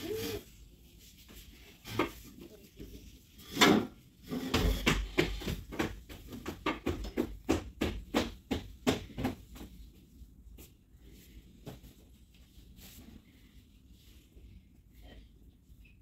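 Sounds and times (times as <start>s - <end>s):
knocks and steps on tiles: 4.3s - 9.8s.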